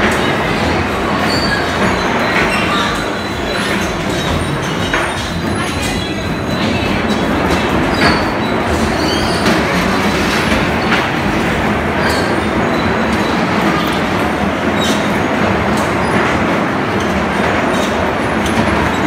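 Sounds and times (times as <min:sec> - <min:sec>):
bumper cars rumbling: 0:00.0 - 0:19.0
short high squeaks: 0:01.2 - 0:11.2.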